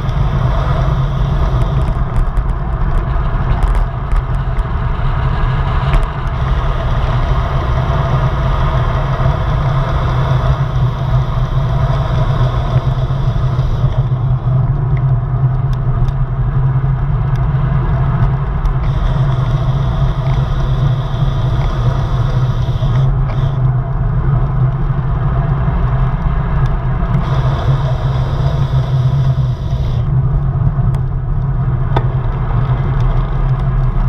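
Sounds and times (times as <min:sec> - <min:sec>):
bike clicks: 0:00.0 - 0:04.9, 0:05.8 - 0:24.9
tyre and road rumble: 0:00.0 - 0:34.0.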